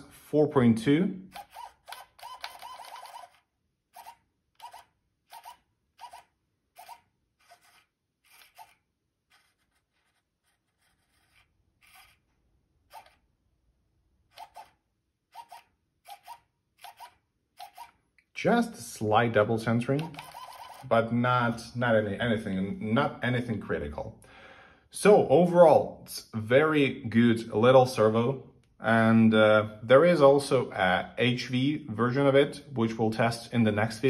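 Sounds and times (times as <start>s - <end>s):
servo motor buzzing: 1.3s - 13.4s, 14.2s - 18.0s, 20.2s - 20.9s.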